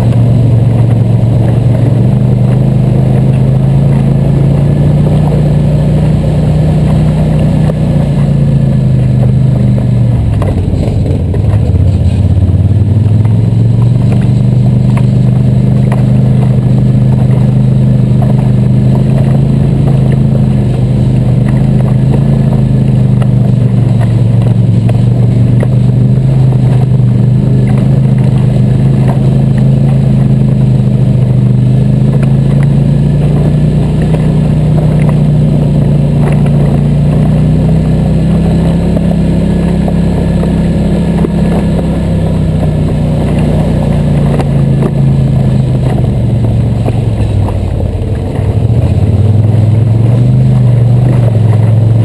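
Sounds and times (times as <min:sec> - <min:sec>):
atv engine running: 0:00.0 - 0:52.0.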